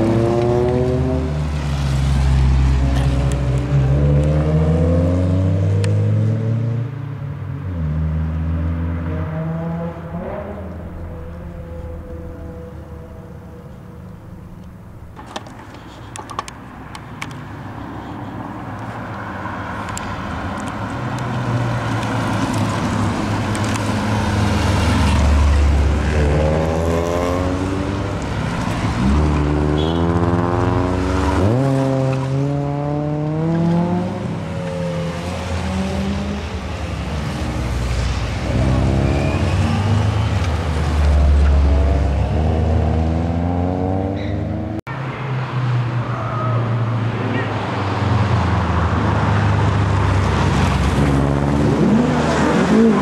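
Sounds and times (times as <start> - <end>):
cars driving past revving: 0.0 - 15.1, 15.7 - 53.0.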